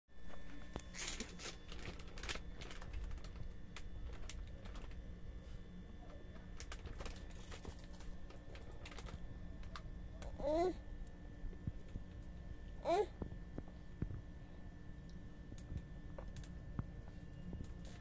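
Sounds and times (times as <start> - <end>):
baby vocal sound: 10.3 - 10.8, 12.8 - 13.2.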